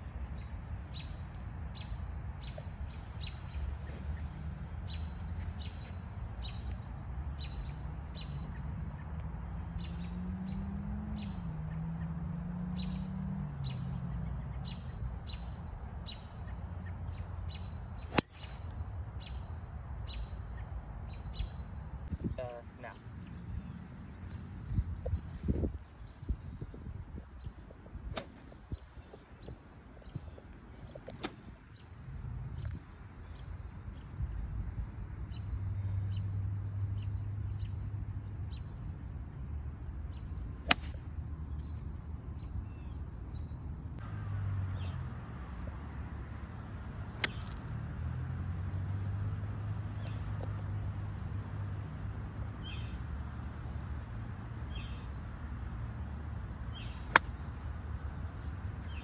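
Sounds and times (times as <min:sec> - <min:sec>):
insects trilling: 0:00.0 - 0:59.0
golf club striking ball: 0:18.1 - 0:18.8, 0:40.6 - 0:41.1, 0:47.2 - 0:47.6, 0:57.1 - 0:57.4.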